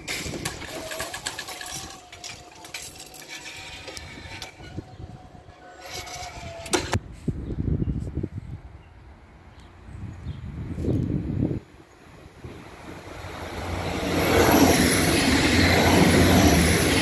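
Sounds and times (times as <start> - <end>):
metal links rattling and clinking: 0.0 - 4.7.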